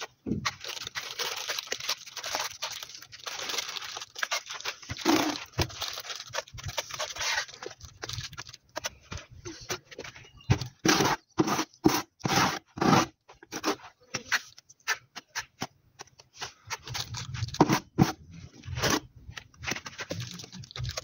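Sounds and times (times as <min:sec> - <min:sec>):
trowel scraping wet adhesive: 0:10.8 - 0:15.0.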